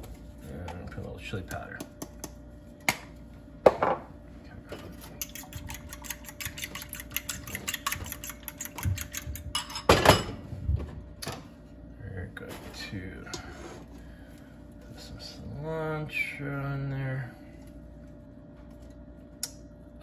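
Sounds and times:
fork whisking eggs in bowl: 4.9 - 9.7.

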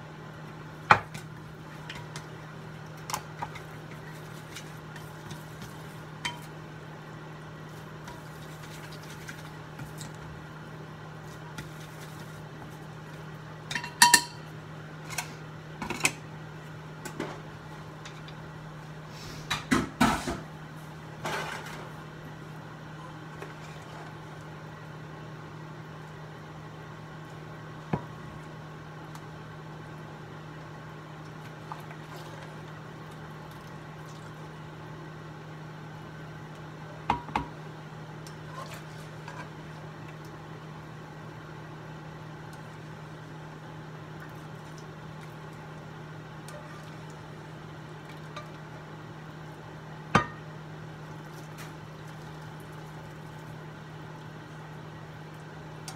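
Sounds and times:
cookware and utensils clattering: 13.7 - 14.5.

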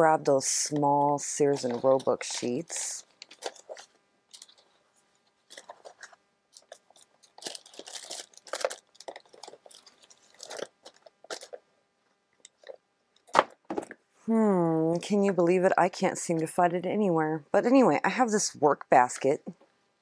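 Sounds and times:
papers rustling and crinkling: 3.2 - 11.6.

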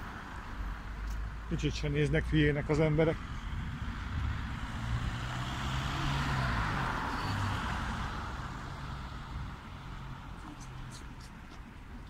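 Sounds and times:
car passing: 3.2 - 11.0.

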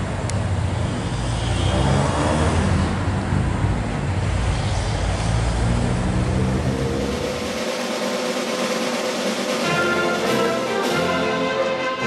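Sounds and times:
road traffic rumble: 0.0 - 7.9
orchestral music: 6.8 - 12.0.

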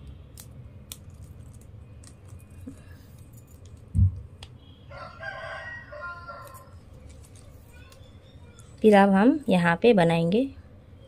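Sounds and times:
rooster crowing: 4.9 - 6.8.

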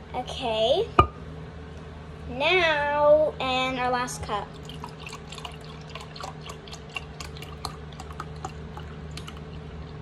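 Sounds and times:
steady low hum: 0.0 - 10.0
liquid pouring into glass cup: 4.5 - 10.0
splashes and drips: 4.6 - 10.0.

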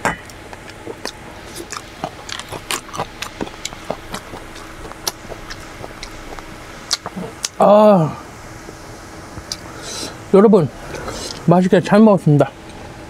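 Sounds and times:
person chewing crunchy food: 0.3 - 7.6, 10.8 - 11.5.

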